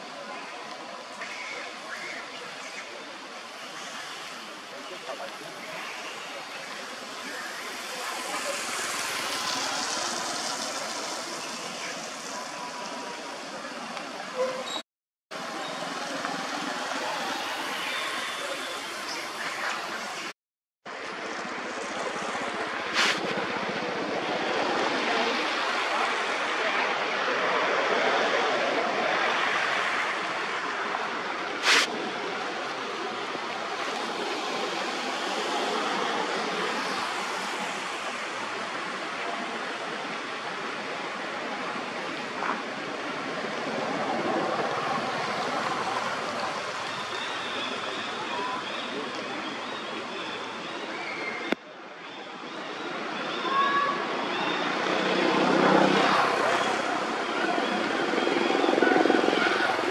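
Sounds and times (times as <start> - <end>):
faint voices: 0.0 - 14.8, 20.9 - 59.9
steady rushing outdoor noise: 0.0 - 59.9
short high hiss: 22.9 - 23.3, 31.6 - 31.9
motorbike passing: 54.8 - 58.0.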